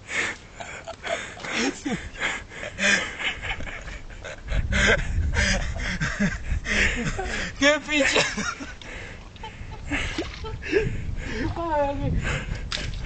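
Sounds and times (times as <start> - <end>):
person laughing hard: 0.6 - 8.8, 9.4 - 11.0.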